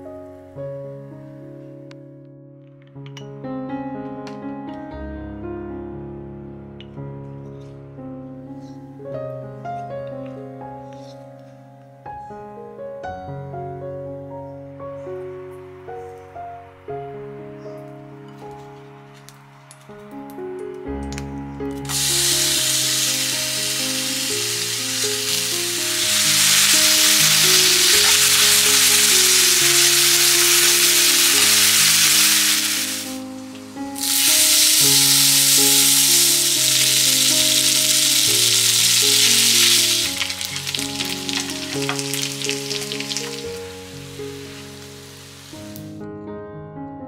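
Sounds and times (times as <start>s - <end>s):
soft slow background music: 0.0s - 47.0s
food sizzling in frying pan: 21.9s - 45.8s.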